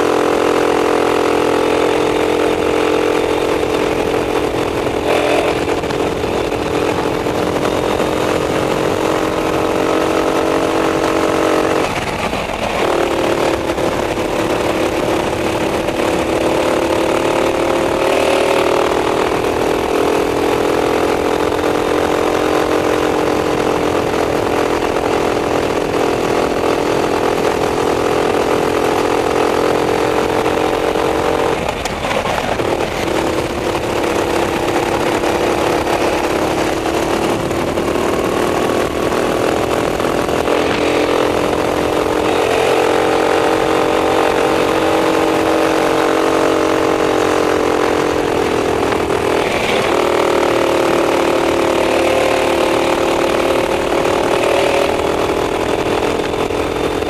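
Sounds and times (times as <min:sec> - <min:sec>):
racing kart engine: 0:00.0 - 0:57.0.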